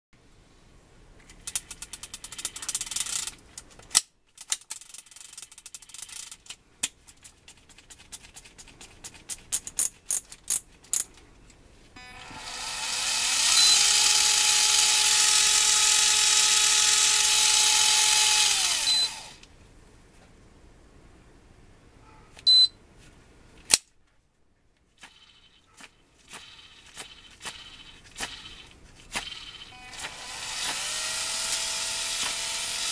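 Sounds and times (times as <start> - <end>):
electric reel motor whine: 12.0 - 19.4
fishing reel rapid clicking: 26.3 - 29.7.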